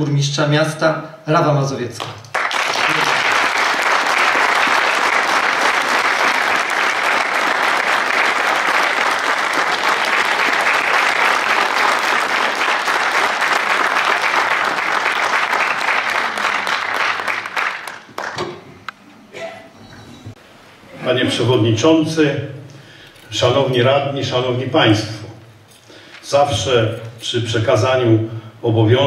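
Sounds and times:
audience applauding: 2.2s - 18.6s.

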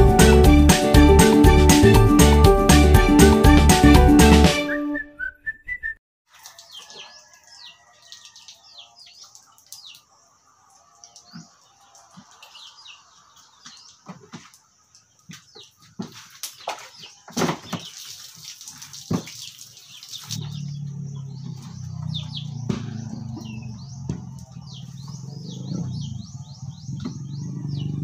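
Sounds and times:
small birds chirping: 6.4s - 28.0s
low motor hum: 20.4s - 28.0s.

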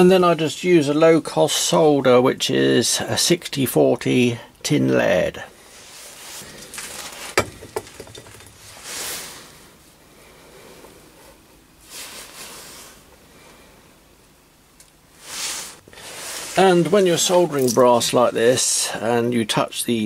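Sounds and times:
short soft hisses: 15.2s - 16.6s.

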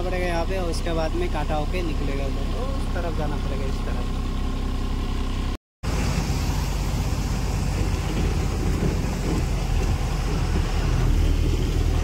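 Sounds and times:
truck engine rumble: 0.0s - 12.0s
road and wind hiss: 5.8s - 12.0s.

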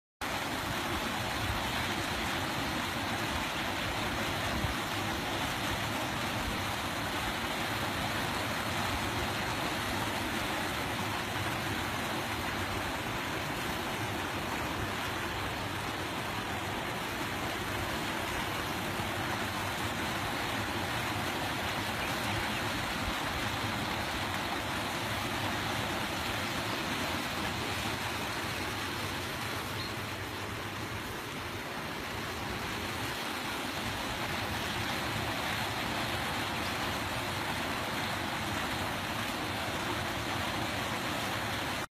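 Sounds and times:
water gushing from outfall: 0.2s - 41.9s.

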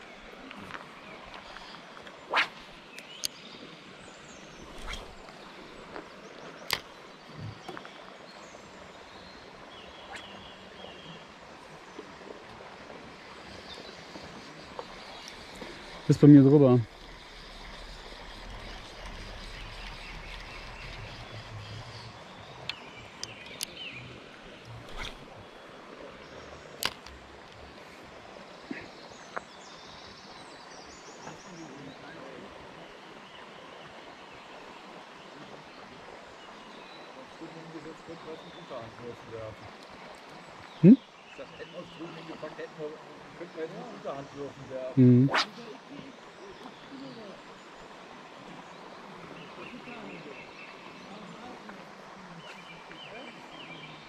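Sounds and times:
outdoor background hiss: 0.0s - 54.0s
faint high twittering: 0.7s - 11.3s, 13.2s - 26.8s.

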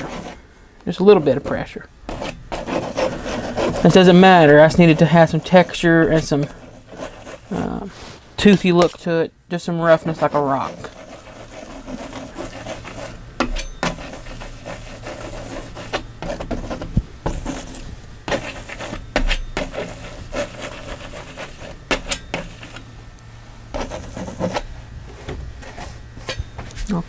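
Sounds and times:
palette knife scraping paint: 0.0s - 0.4s, 1.1s - 9.1s, 9.9s - 22.9s, 23.7s - 24.7s.

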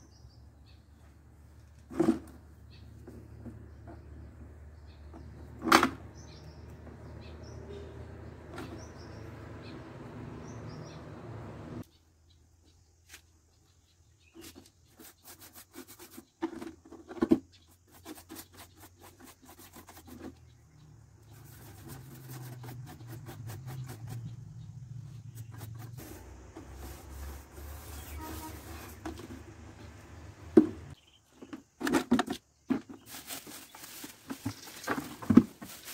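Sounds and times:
pencil scratching on plastic: 14.4s - 16.4s, 17.8s - 20.5s, 21.2s - 24.4s, 25.3s - 29.3s.

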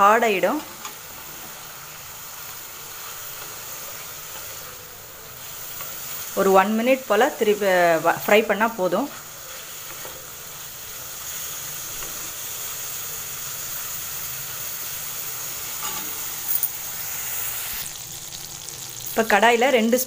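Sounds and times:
cheese cubes sizzling in oil: 0.0s - 20.0s
wooden spatula turning food: 7.9s - 12.8s.

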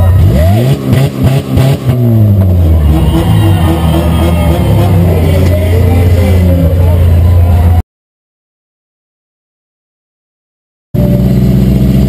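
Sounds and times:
car engine idling: 0.0s - 7.8s, 11.0s - 12.0s.

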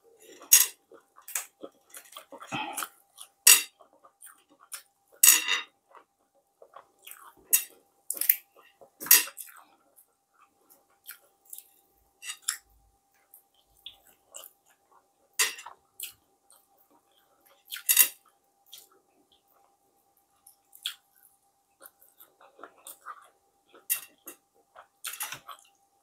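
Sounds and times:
crunching and mouth smacks eating: 5.9s - 11.8s, 20.4s - 25.8s.

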